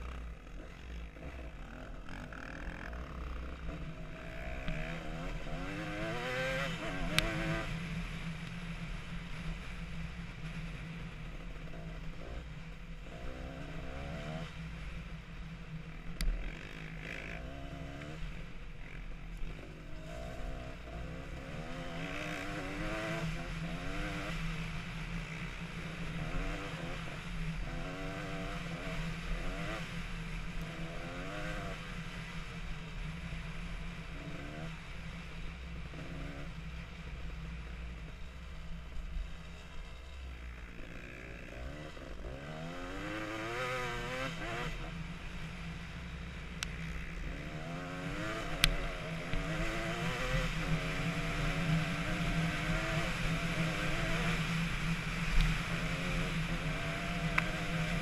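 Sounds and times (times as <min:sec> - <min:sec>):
dirt bike engine revving: 0:00.0 - 0:07.8, 0:16.4 - 0:24.6, 0:39.4 - 0:45.4, 0:46.8 - 0:58.0.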